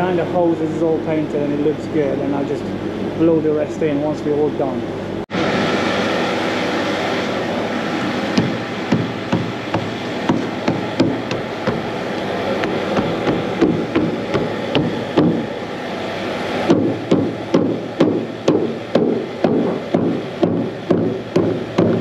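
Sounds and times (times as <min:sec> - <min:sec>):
steady background noise: 0:00.0 - 0:22.0.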